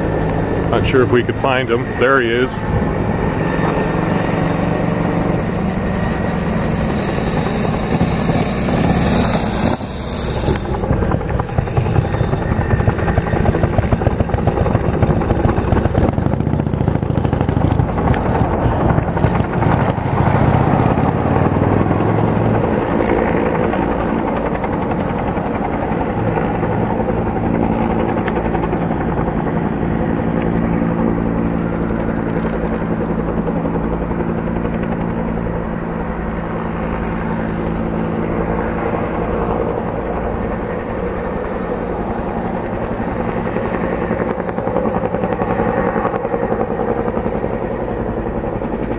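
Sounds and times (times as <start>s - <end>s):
helicopter rotor beating: 0.0s - 48.9s.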